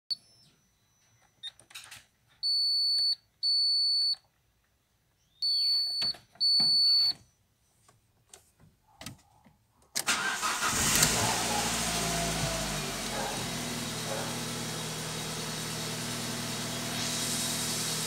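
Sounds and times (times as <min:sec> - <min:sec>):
high warning beeps: 0:05.4 - 0:07.2.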